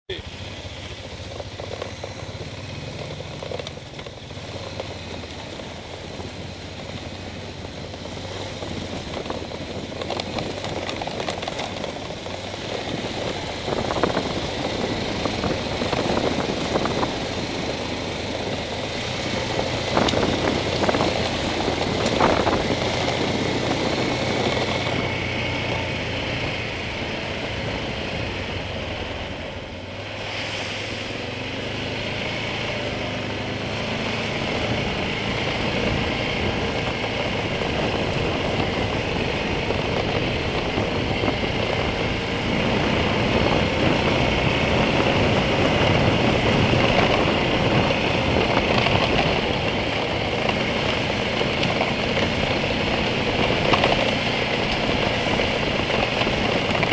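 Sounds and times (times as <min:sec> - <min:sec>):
off-road vehicle engine running: 0:00.1 - 0:56.9
tyres on gravel: 0:00.3 - 0:27.1, 0:33.6 - 0:56.9
knocks and rattles over bumps: 0:01.2 - 0:06.0, 0:06.7 - 0:17.4, 0:33.9 - 0:56.9.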